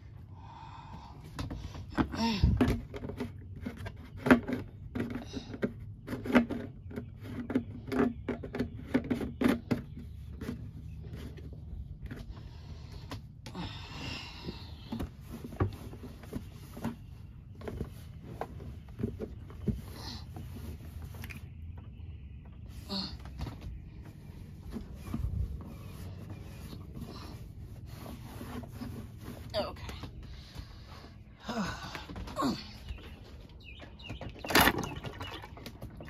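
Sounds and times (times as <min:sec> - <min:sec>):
plastic parts knocking and clicking: 0:01.4 - 0:11.5
wet cloth rubbing plastic: 0:24.1 - 0:30.2.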